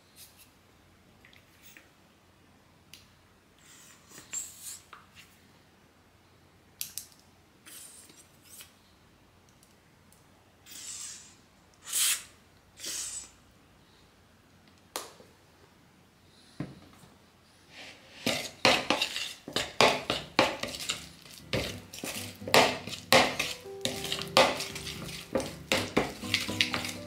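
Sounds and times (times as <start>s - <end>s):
squeeze bottle squirting air: 10.7s - 13.3s.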